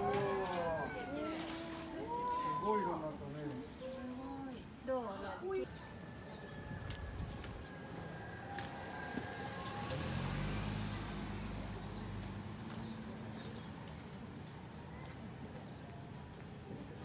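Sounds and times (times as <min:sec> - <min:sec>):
street background noise: 0:00.0 - 0:17.0
vehicle engine passing: 0:07.6 - 0:13.8.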